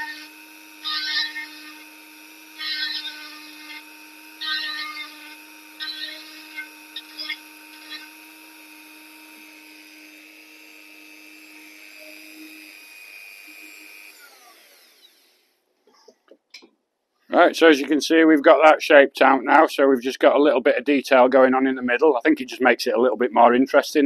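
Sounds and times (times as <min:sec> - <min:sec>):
rotary tool whining: 0:00.0 - 0:16.2.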